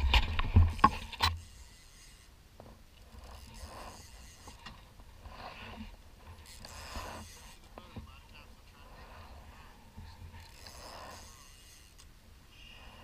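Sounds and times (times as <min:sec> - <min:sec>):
gear scraping and rustling: 0:00.0 - 0:12.1.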